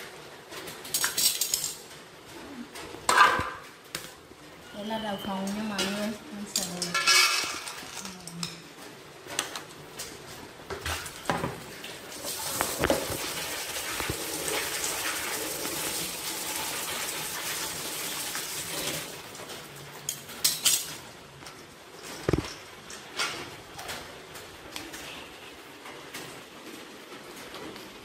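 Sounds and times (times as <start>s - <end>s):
metal colander clinking: 5.7s - 8.6s
water rushing and sloshing: 11.6s - 19.8s.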